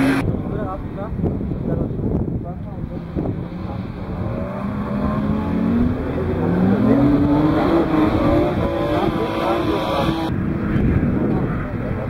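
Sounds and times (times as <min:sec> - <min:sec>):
car engine revving hard: 0:03.4 - 0:10.3.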